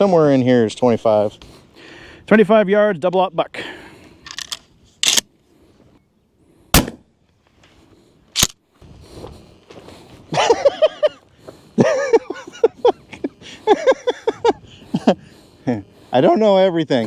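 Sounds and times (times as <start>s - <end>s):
shotgun blast: 6.7s - 7.0s
sharp click: 8.4s - 8.6s.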